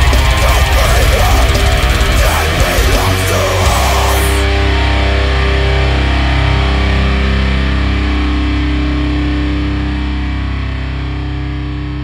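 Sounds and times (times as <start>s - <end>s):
distorted electric guitar chord: 0.0s - 12.0s.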